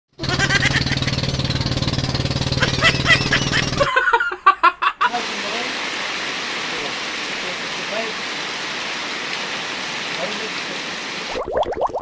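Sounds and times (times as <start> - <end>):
boat engine running: 0.1 - 3.9
man laughing: 0.2 - 1.2, 2.6 - 5.3.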